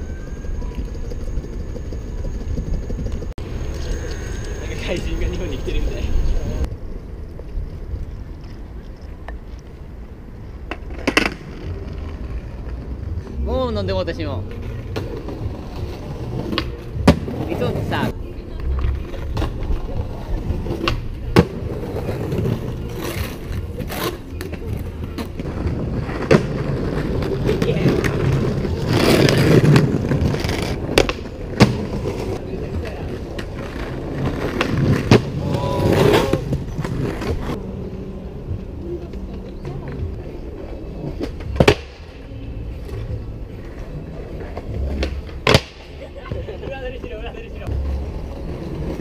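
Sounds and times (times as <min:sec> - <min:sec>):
skateboard wheels rumbling on stone: 0:00.0 - 0:13.5, 0:14.3 - 0:49.0
skateboard cracking: 0:10.6 - 0:12.8, 0:14.6 - 0:37.6.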